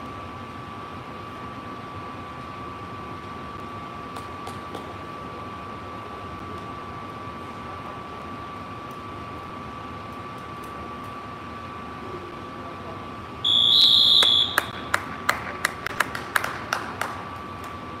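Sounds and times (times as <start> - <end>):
scoreboard buzzer: 13.5 - 14.8
hand claps: 14.2 - 17.8.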